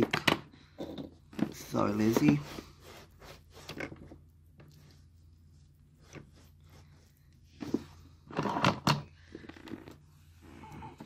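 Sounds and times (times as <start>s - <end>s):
tissue rubbing on wooden floor: 1.7s - 3.8s.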